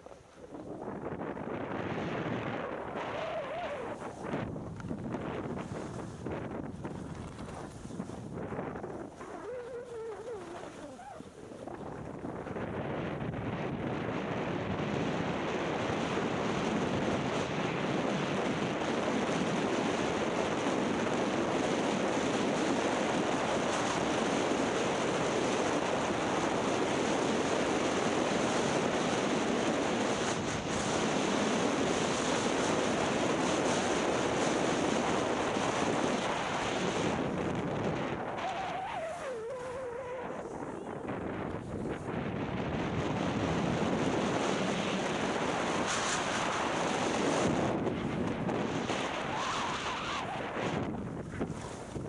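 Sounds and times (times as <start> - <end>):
skis sliding on snow: 0.0 - 12.2, 27.9 - 52.0
wind rushing over microphones: 0.0 - 52.0.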